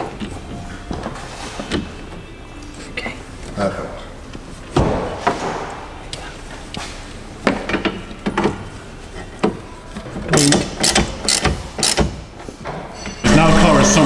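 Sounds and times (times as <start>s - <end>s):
hand tools knocking and clicking: 10.2s - 12.7s.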